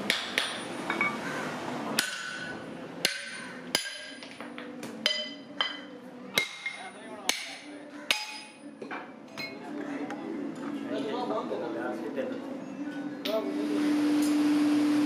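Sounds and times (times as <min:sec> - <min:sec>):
hammer striking steel on anvil: 0:00.0 - 0:01.2, 0:02.0 - 0:04.4, 0:05.0 - 0:08.7.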